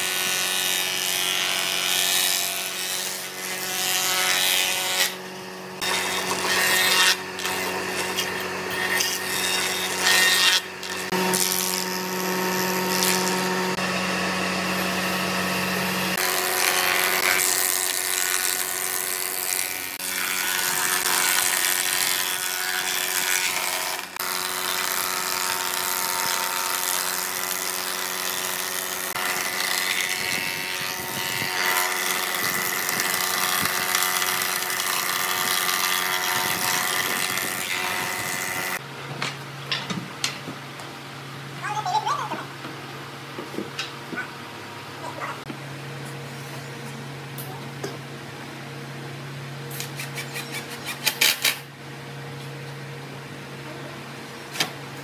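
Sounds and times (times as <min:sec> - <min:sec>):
planer cutting wooden boards: 0:00.0 - 0:38.9
motor hum: 0:00.0 - 0:49.7.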